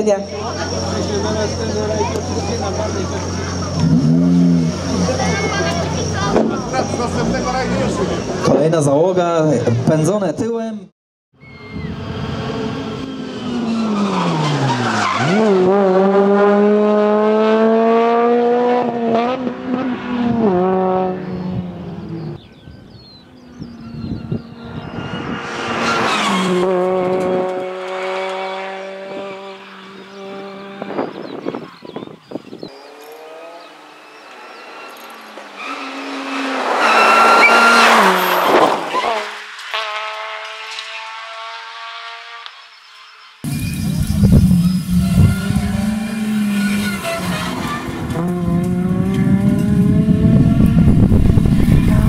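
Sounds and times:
rally car engine accelerating: 0.3 - 8.5, 11.8 - 22.4, 23.5 - 31.9, 32.6 - 42.7, 43.4 - 52.0
gear changes: 23.6 - 41.8, 43.4 - 52.0.

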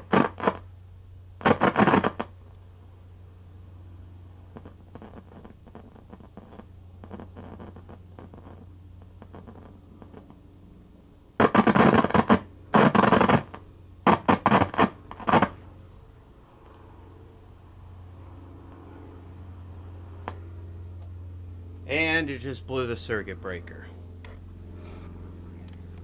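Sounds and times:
television knobs crackling: 0.0 - 0.7, 1.4 - 2.4, 4.5 - 10.4, 11.4 - 15.7
steady low hum: 0.0 - 26.0.

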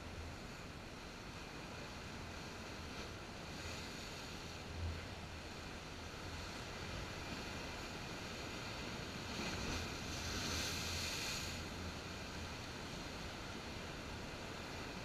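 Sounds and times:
surf washing over rocks: 1.5 - 15.0.

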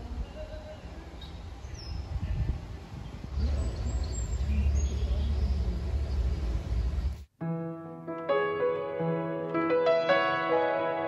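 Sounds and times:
low rumble: 2.0 - 7.3.

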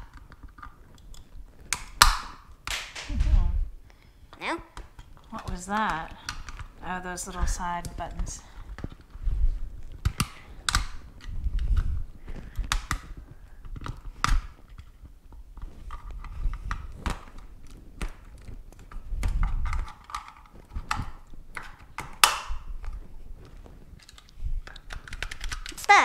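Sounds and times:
screwdriver scraping plastic shell: 24.0 - 25.9.

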